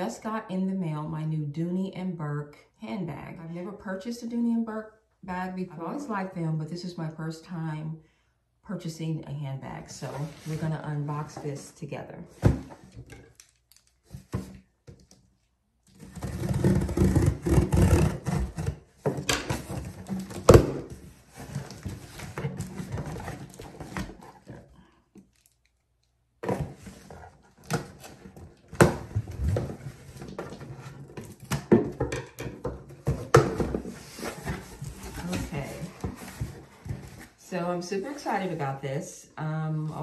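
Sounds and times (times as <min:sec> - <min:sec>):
cardboard flaps scraping and rustling: 0:16.0 - 0:24.7, 0:32.9 - 0:37.4.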